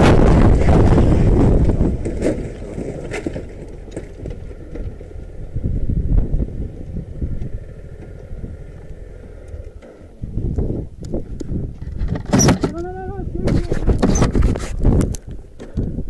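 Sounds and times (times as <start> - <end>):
bike jolting over stones: 0.0 - 5.4, 11.6 - 15.3
motorcycle engine rumble: 0.0 - 16.0
wind on microphone: 0.0 - 16.0.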